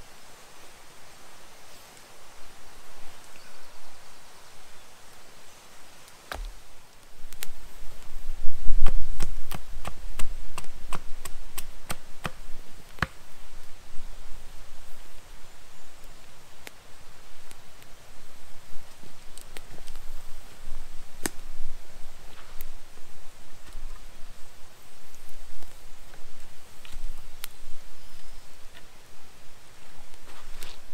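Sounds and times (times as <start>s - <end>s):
sharp chopping knocks: 6.3s - 6.6s.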